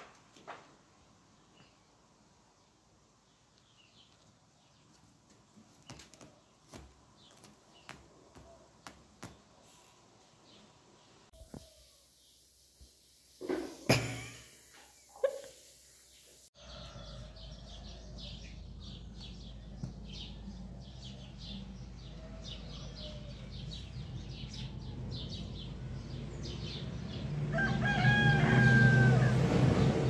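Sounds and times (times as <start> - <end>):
small birds chirping: 1.2 - 13.4, 14.8 - 27.3
rooster crowing: 16.6 - 18.5, 22.2 - 23.6, 27.5 - 29.8.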